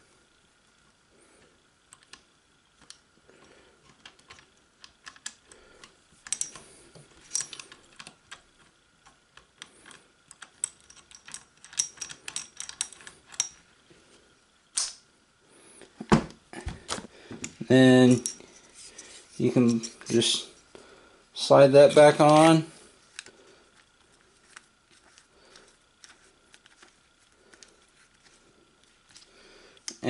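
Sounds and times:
rifle parts clicking and rattling: 3.8s - 13.7s, 16.8s - 20.3s.

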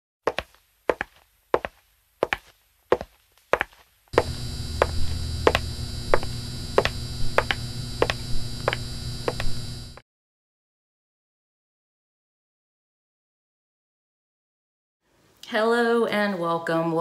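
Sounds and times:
high-heel footsteps clicking: 0.3s - 9.6s
neon sign electric buzz: 4.1s - 10.0s.

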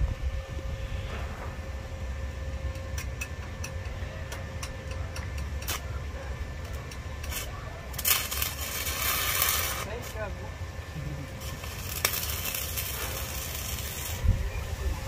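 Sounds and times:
low steady rumble: 0.0s - 15.0s
welding electrode clicks: 2.7s - 6.0s, 6.6s - 10.2s, 11.4s - 14.3s
welding arc hissing: 6.7s - 15.0s.

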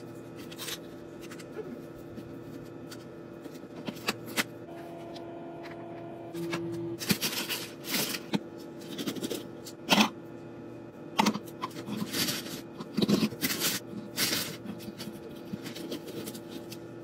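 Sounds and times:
steady low hum: 0.0s - 17.0s
plastic bag crinkling: 7.0s - 9.4s, 11.7s - 16.9s.

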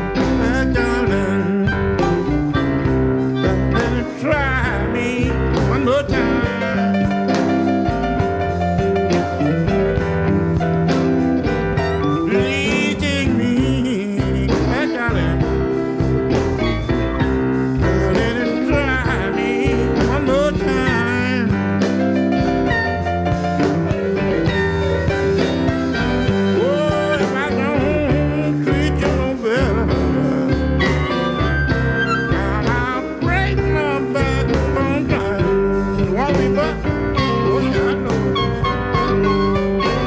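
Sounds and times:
electric blues band playing: 0.0s - 40.0s.

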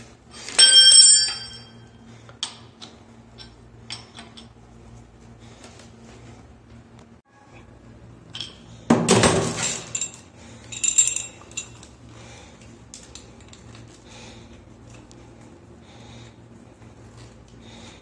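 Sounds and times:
low steady hum: 0.0s - 18.0s
metal tools clattering: 0.3s - 1.8s, 8.3s - 11.9s
ringing metallic clinks: 0.4s - 1.9s.

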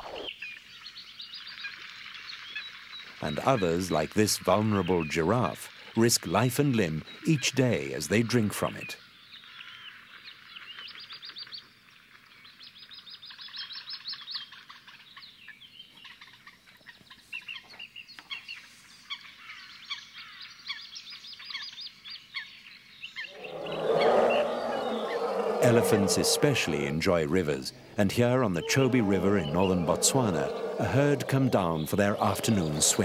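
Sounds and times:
birds chirping and calling: 23.3s - 33.0s.

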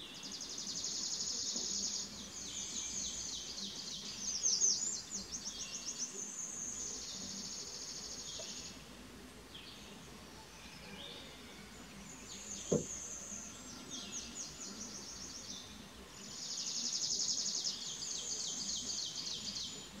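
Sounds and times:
short knock: 12.7s - 13.0s.

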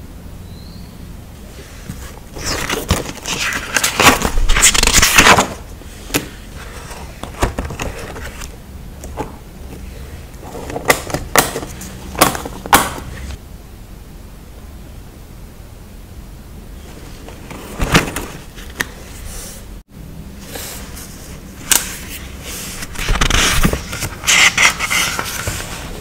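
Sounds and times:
crinkly paper rustling: 1.8s - 8.6s, 20.5s - 26.0s.

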